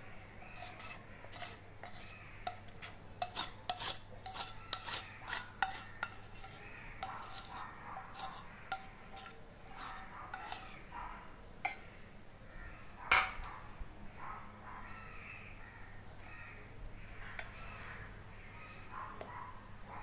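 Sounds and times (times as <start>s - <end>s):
spoon scraping a metal pan: 0.5s - 10.8s, 11.6s - 11.8s, 17.2s - 17.9s.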